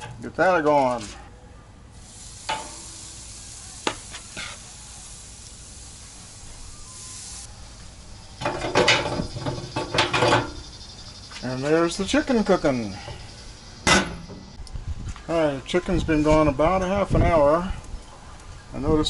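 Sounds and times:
meat sizzling on a grate: 1.9s - 14.6s
rapid rattling sizzle: 1.9s - 14.6s.

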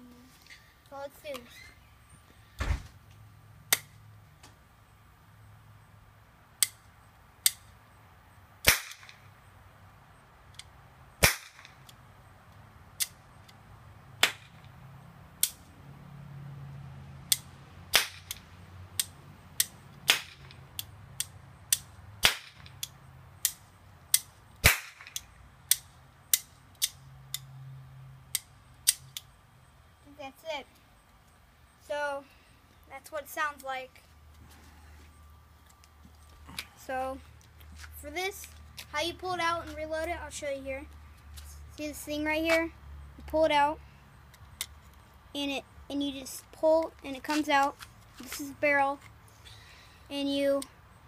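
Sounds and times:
toy cap gun cracks: 6.6s - 6.8s, 8.6s - 9.2s, 13.0s - 13.2s, 15.4s - 15.6s, 19.0s - 27.5s, 28.3s - 29.3s.

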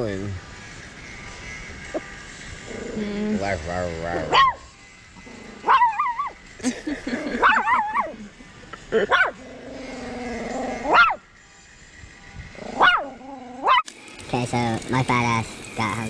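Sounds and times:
small dog yipping and howling: 4.1s - 4.7s, 5.6s - 6.4s, 7.4s - 8.2s, 10.8s - 11.2s, 12.8s - 13.9s.

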